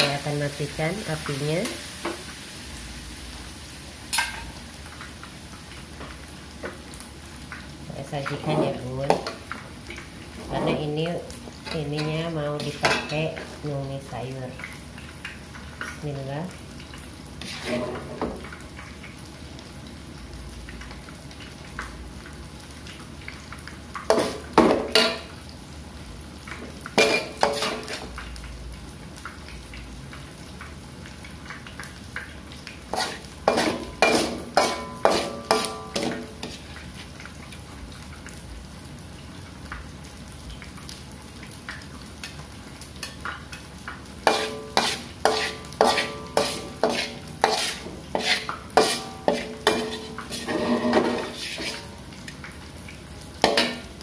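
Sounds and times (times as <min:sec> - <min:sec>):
oil sizzling: 0:00.0 - 0:54.0
metal spatula scraping a wok: 0:17.4 - 0:18.2, 0:27.0 - 0:28.1, 0:32.9 - 0:36.7, 0:44.3 - 0:52.0.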